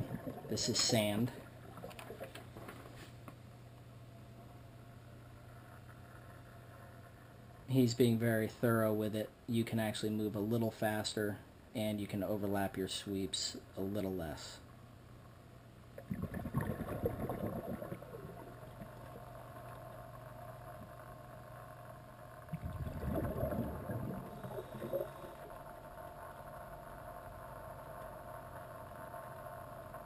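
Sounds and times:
water noise: 0.0 - 2.7, 15.9 - 30.0.

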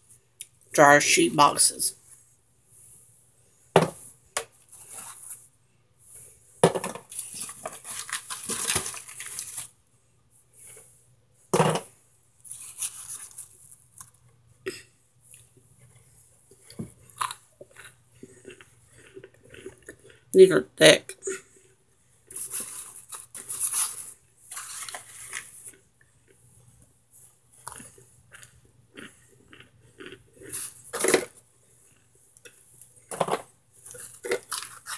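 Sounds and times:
foil crinkling: 7.1 - 9.8, 22.4 - 25.6, 33.9 - 34.9
plastic bag crinkling: 7.1 - 9.8, 22.4 - 25.8, 33.2 - 34.9.

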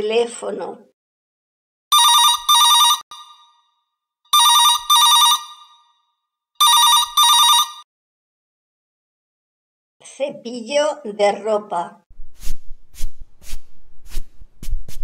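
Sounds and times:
telephone ringing: 1.9 - 3.6, 4.3 - 6.0, 6.6 - 7.9.

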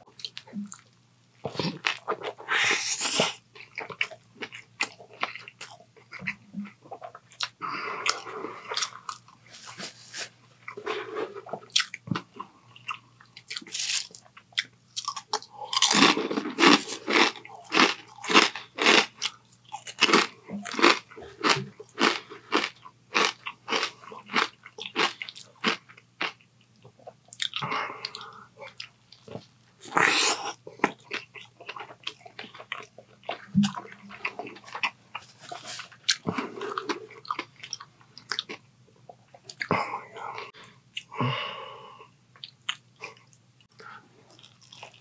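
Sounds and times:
crunchy wet chewing: 10.6 - 38.6.

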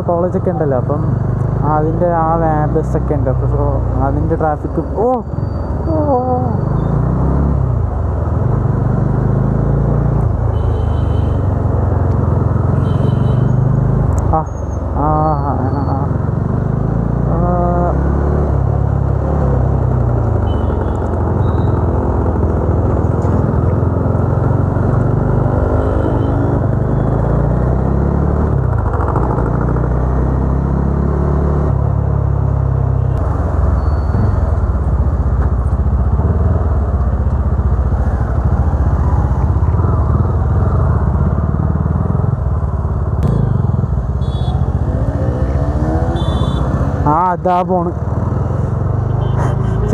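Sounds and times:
wind and road noise: 0.0 - 49.9
motorcycle engine running: 34.2 - 49.9.

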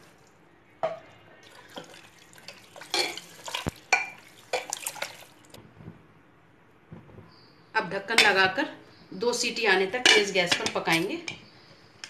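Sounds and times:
water sloshing in pot: 1.4 - 5.6.

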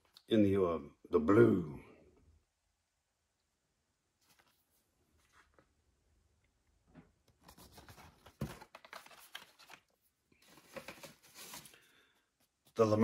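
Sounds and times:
plastic packaging crinkling: 7.5 - 11.8
rustling in cardboard box: 10.4 - 11.9.

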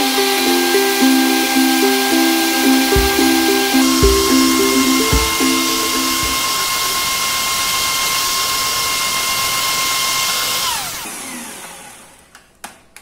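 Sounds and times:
background music: 0.0 - 6.6.

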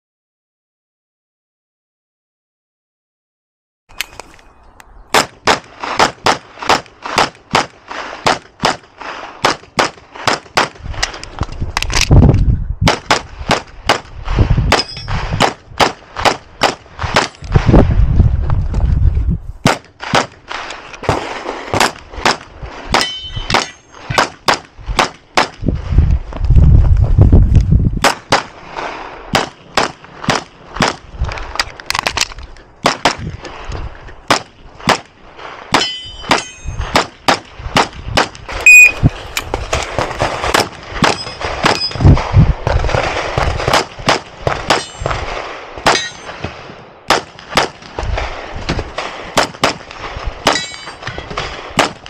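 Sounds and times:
rapid pistol shots: 5.2 - 10.8, 12.8 - 14.1, 14.7 - 17.6, 19.6 - 25.6, 28.0 - 31.1, 34.3 - 39.0, 39.7 - 52.0
steel targets ringing: 14.8 - 15.2, 23.0 - 24.1, 35.7 - 37.0, 38.6 - 39.0, 41.1 - 42.0, 44.8 - 45.1, 45.9 - 46.4, 50.5 - 51.3.

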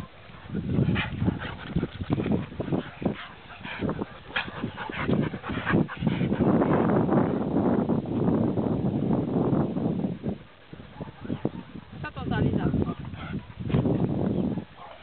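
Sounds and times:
dog panting: 0.2 - 6.9, 12.8 - 13.7.

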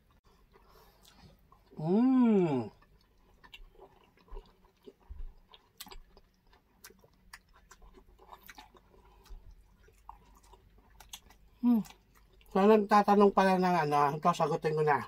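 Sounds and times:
close-up chewing: 0.0 - 1.8, 2.5 - 12.6.

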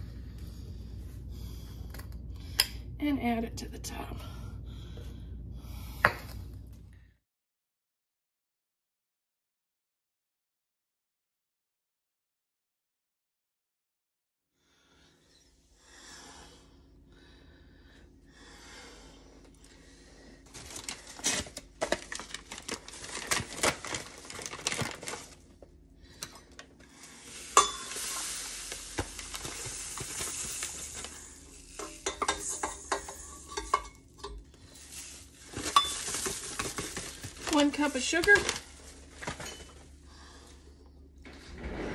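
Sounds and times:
hissing rustle: 26.9 - 33.7
metal cup and bowl clinking: 27.4 - 37.6.

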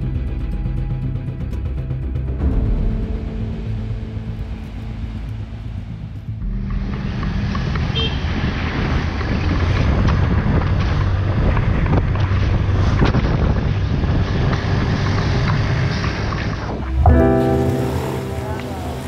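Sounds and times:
road rumble: 0.0 - 19.0
wind buffeting microphone: 4.3 - 18.1.

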